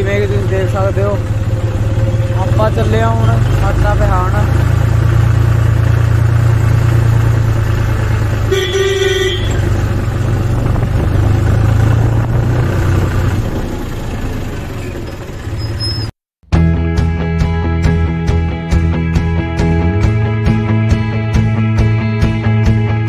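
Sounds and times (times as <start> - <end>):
tractor diesel engine running: 0.0 - 16.2
horn beep: 8.5 - 9.7.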